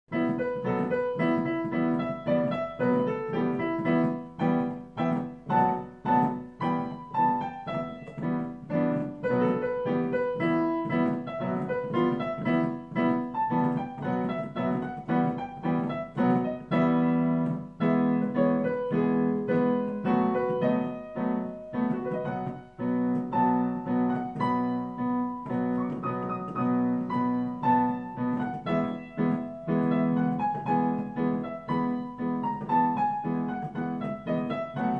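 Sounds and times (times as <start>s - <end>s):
solo piano: 0.0s - 34.9s.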